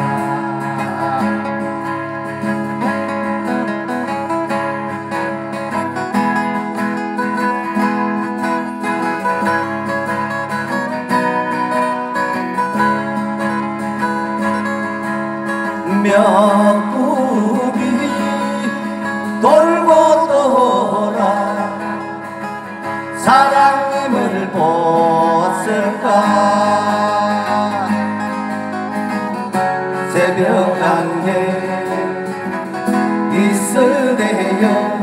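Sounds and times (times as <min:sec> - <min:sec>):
person singing: 0:00.0 - 0:03.2, 0:15.7 - 0:28.9, 0:29.9 - 0:35.0
acoustic guitars strumming: 0:00.0 - 0:35.0.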